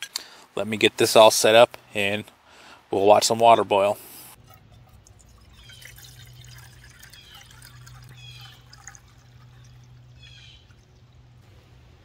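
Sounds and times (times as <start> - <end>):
water pouring into metal pot: 4.4 - 11.4.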